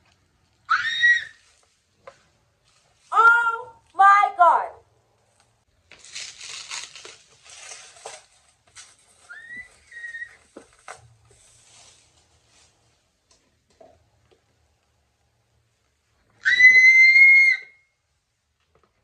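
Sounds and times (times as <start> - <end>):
bubble wrap rustling and crinkling: 5.3 - 13.2
short high squeal: 9.3 - 10.5.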